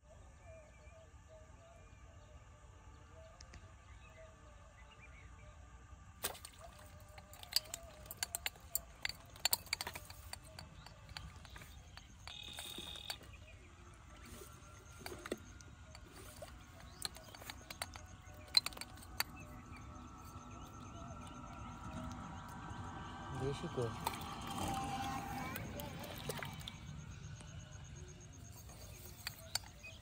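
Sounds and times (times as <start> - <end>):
fishing line clicks and rustles: 6.2 - 30.0
bird call: 9.7 - 13.6.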